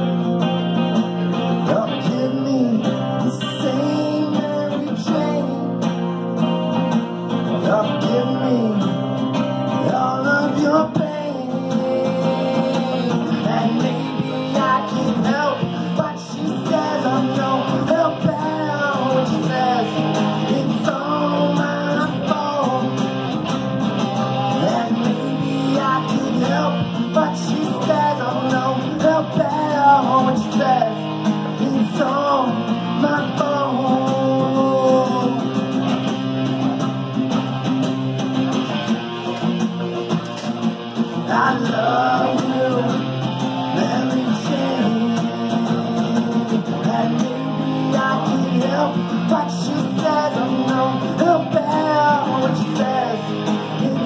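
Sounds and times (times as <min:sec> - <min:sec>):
acoustic guitars strummed: 0:00.0 - 0:54.0
man singing: 0:01.3 - 0:06.2, 0:07.3 - 0:36.0, 0:40.9 - 0:54.0.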